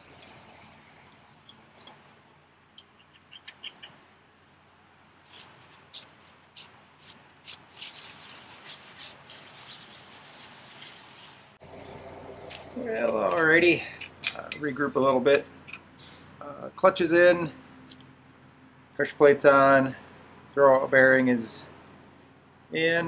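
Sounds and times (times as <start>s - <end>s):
small metal parts clicking: 12.5s - 14.9s
metal parts rattling: 12.5s - 15.0s.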